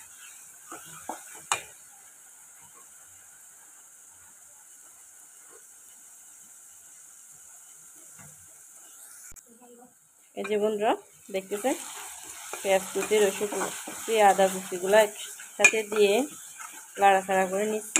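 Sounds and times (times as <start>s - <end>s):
food sizzling in hot oil: 0.0s - 17.9s.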